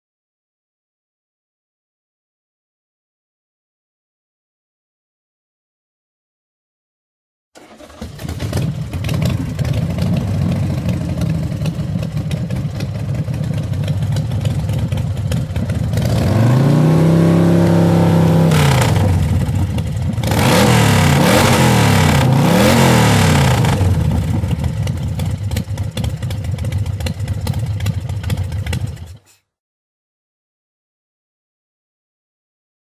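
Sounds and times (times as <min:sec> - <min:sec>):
motorcycle engine idling and revving: 0:07.6 - 0:29.4.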